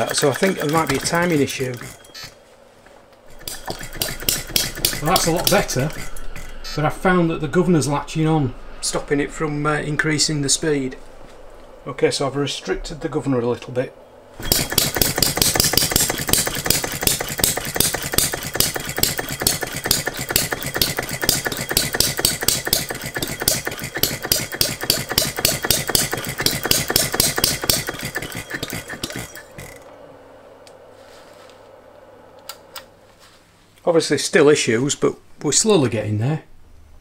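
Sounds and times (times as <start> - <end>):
model engine firing: 0.0 - 2.3, 3.3 - 6.6, 14.4 - 29.9.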